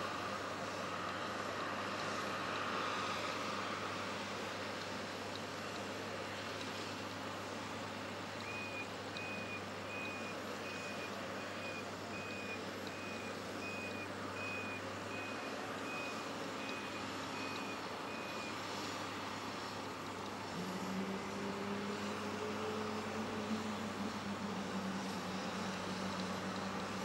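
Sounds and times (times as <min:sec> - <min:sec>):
low hum of apron noise: 0:00.0 - 0:27.0
vehicle back-up alarm beeping: 0:08.4 - 0:19.7.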